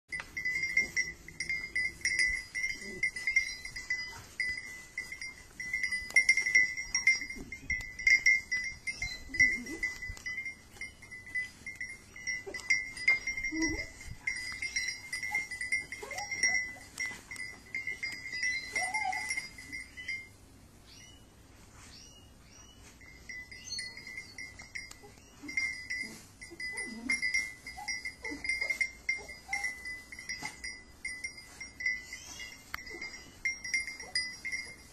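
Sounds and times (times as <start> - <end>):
dry straw rustling: 0.1 - 20.2
pulsing high ringing tone: 0.1 - 21.1, 22.8 - 34.9.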